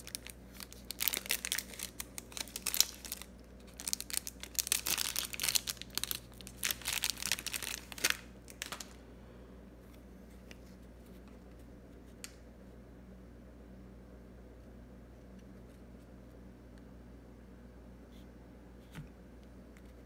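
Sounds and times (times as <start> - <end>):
plastic wrapper crinkling and tearing: 0.0 - 9.0.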